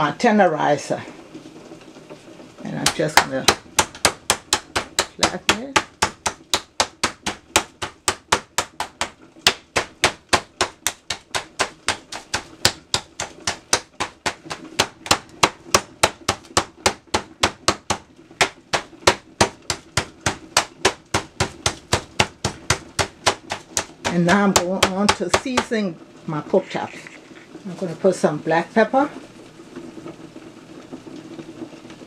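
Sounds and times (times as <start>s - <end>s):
meat mallet pounding meat: 2.7s - 25.8s.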